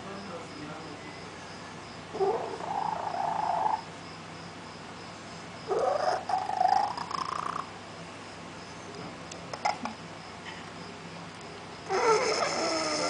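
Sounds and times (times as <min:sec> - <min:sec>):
cat making strange calls: 0:02.1 - 0:03.8, 0:05.7 - 0:07.6, 0:11.9 - 0:13.0.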